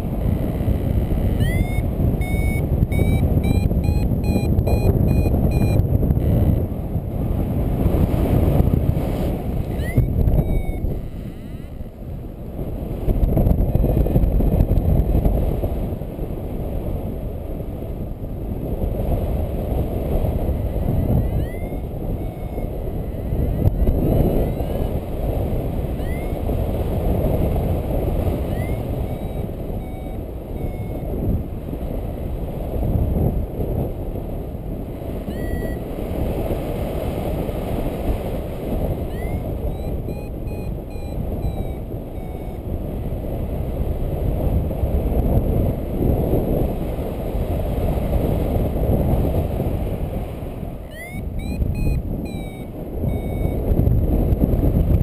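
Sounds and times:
wind rushing over microphone: 0.0 - 55.0
short electronic beeps: 0.2 - 6.6, 9.6 - 12.0, 20.4 - 25.0, 25.8 - 26.5, 28.3 - 31.4, 35.1 - 35.9, 38.9 - 42.8, 50.8 - 53.7.

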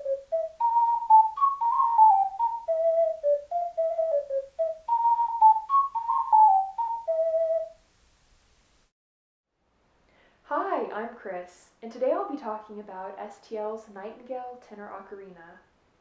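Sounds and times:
ocarina melody: 0.0 - 7.8.

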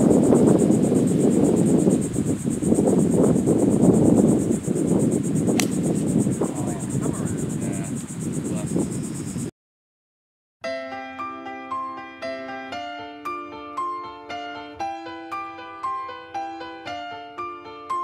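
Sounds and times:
insects trilling: 0.0 - 9.5, 14.4 - 18.0
wind buffeting microphone: 0.0 - 9.5
golf club striking ball: 5.5 - 6.1.

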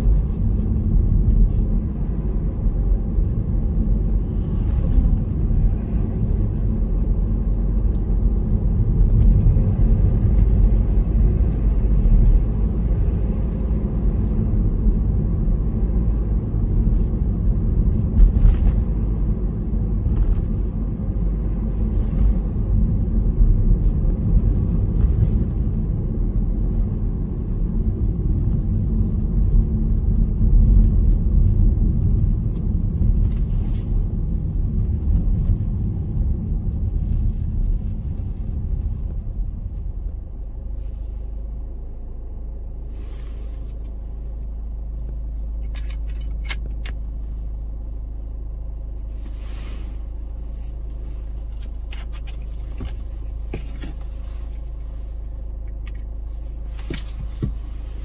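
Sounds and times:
car engine and road rumble: 0.0 - 58.0.

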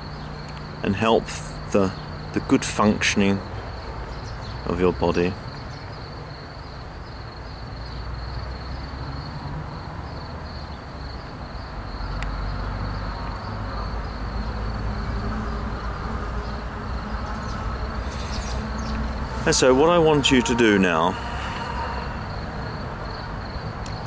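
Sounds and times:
high-pitched insect-like trill: 16.5 - 24.0
low rumble: 16.6 - 24.0.

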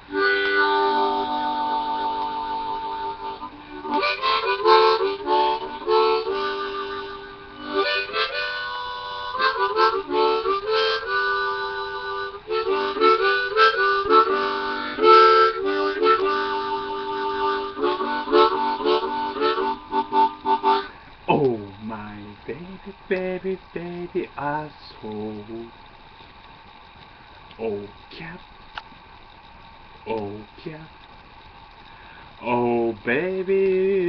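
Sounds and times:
harmonica chords: 0.0 - 24.7.

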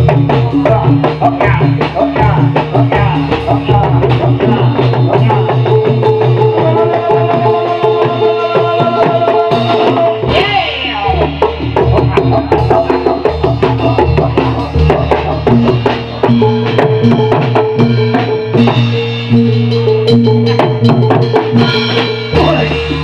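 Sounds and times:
hand drums fast rhythm: 0.0 - 23.0
ringing pitched tones: 0.0 - 23.0
sliding melodic sound: 13.8 - 23.0.

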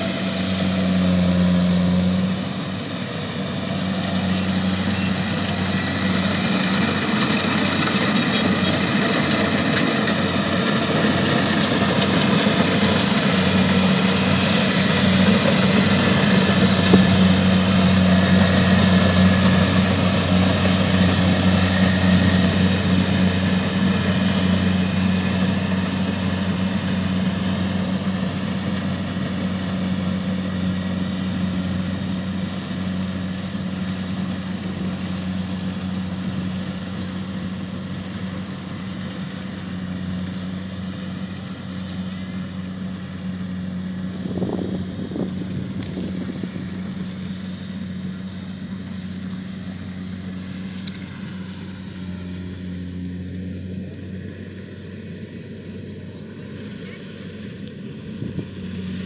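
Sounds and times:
combine harvester engine droning: 0.0 - 59.0.

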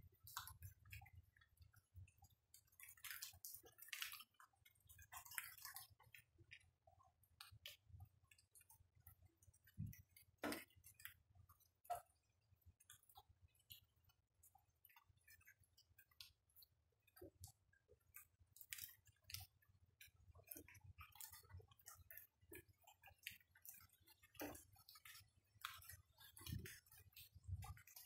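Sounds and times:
rainwater dripping: 18.6 - 28.0.

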